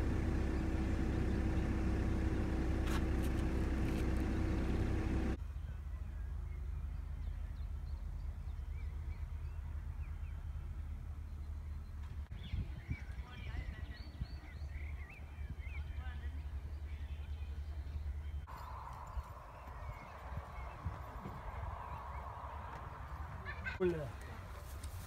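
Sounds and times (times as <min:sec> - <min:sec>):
low rumble with hum: 0:00.0 - 0:23.2.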